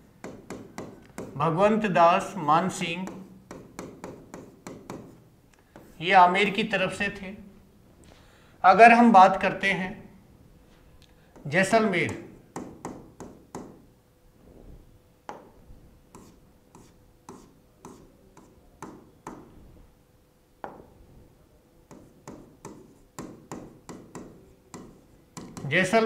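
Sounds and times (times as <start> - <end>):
pen tapping on a screen: 0.2 - 1.4, 3.0 - 5.9, 12.1 - 13.8, 15.3 - 15.5, 16.1 - 19.5, 20.6 - 20.9, 21.9 - 25.7.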